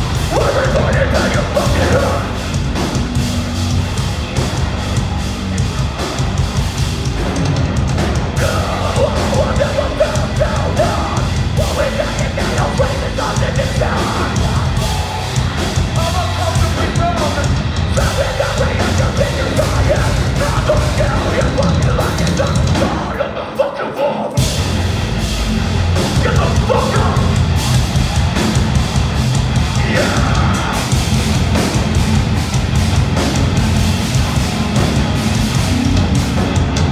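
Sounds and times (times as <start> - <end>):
metalcore band playing live: 0.0 - 36.9
vocalist yelling: 8.4 - 15.3, 26.2 - 27.4, 29.8 - 31.0.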